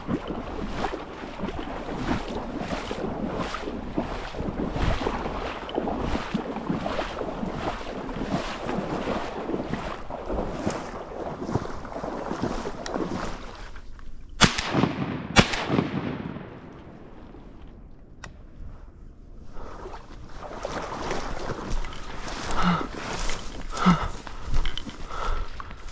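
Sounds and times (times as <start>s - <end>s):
footsteps: 0.0s - 14.2s, 20.4s - 25.9s
shotgun shots: 14.4s - 17.2s.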